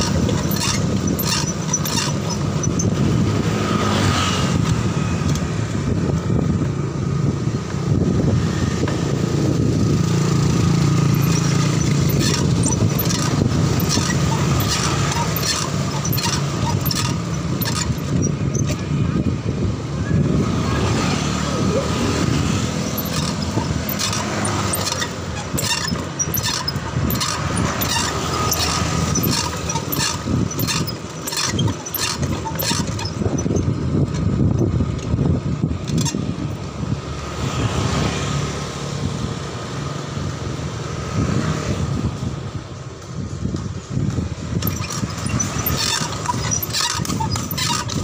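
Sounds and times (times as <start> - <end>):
bicycle clicks and rattles: 0.0 - 3.4, 10.1 - 19.0, 22.2 - 36.7, 43.0 - 48.0
motorbikes running: 0.0 - 48.0
rumble of tyres and wind: 0.0 - 48.0.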